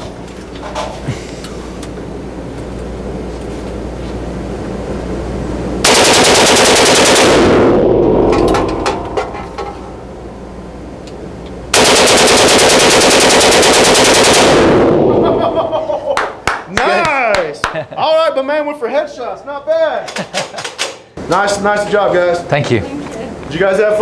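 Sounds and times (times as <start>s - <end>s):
machine gun bursts: 5.8s - 7.6s, 11.7s - 14.9s.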